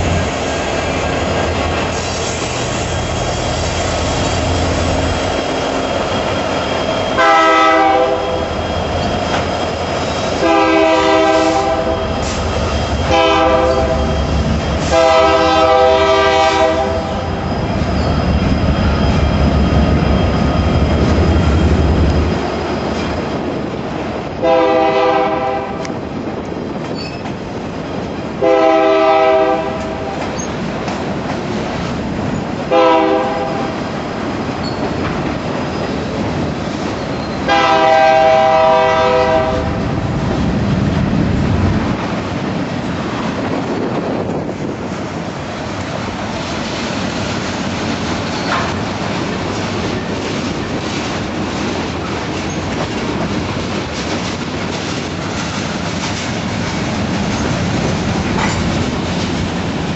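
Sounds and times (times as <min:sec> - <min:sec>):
diesel locomotives rumbling: 0:00.0 - 0:59.9
train air horn blasts: 0:07.1 - 0:08.6, 0:10.4 - 0:17.4, 0:24.4 - 0:26.0, 0:28.4 - 0:30.2, 0:32.7 - 0:33.8, 0:37.4 - 0:39.9.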